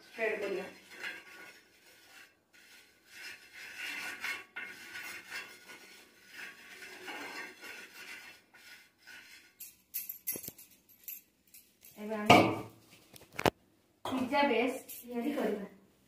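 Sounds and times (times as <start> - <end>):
spoon scraping iron griddle: 0.0 - 10.7.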